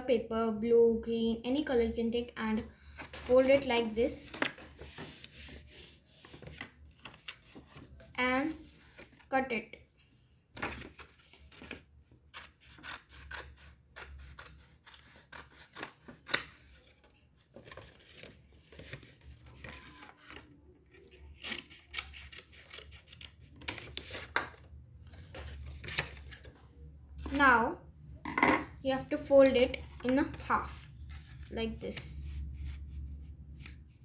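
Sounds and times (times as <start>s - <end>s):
paper rustling: 2.8s - 9.3s, 10.5s - 12.9s, 15.6s - 26.6s
scissors snipping paper: 11.6s - 16.8s, 21.1s - 24.4s.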